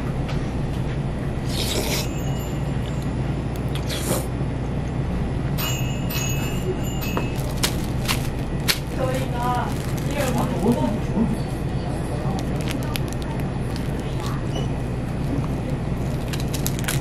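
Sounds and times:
steady low hum: 0.0 - 17.0
noodles slurped: 3.7 - 4.3.

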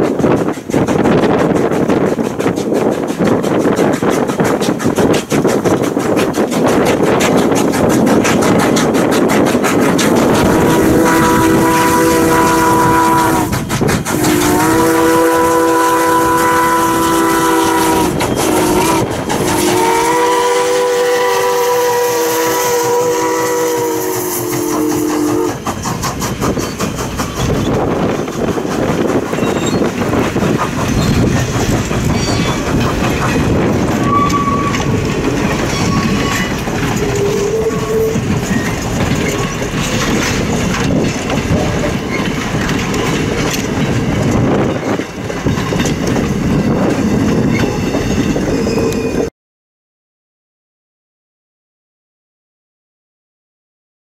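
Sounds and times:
wheels clacking over rail joints: 0.0 - 49.2
steam locomotive passing: 0.0 - 49.3
train whistle blasts: 10.3 - 25.6, 34.0 - 35.0, 37.0 - 38.2.

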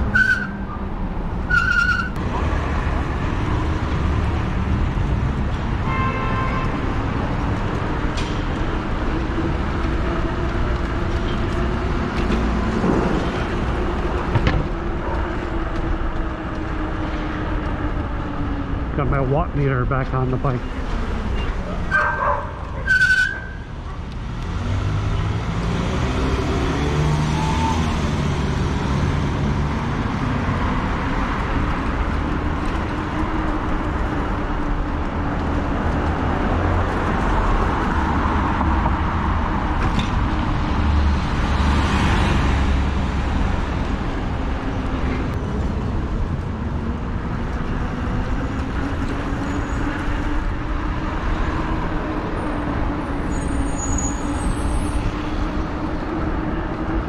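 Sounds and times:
road traffic passing: 0.0 - 57.0
passing car engine: 24.2 - 33.2.

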